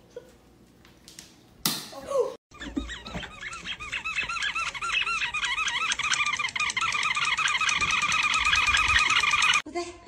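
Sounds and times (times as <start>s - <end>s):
squeaky toy squeaks: 2.5s - 9.6s.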